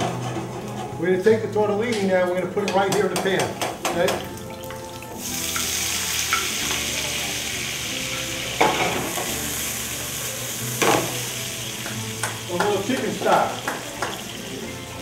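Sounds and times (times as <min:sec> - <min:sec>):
pasta sizzling in hot oil: 0:04.2 - 0:15.0.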